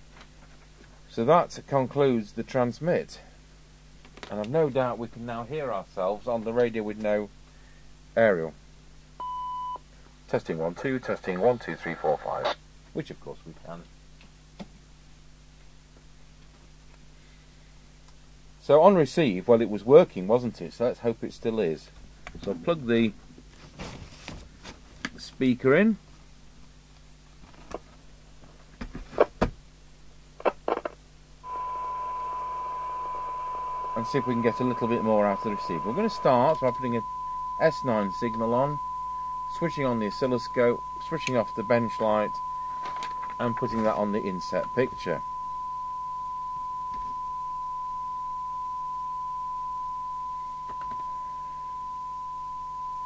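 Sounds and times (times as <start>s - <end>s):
high-pitched test tone with hiss: 31.4s - 53.0s.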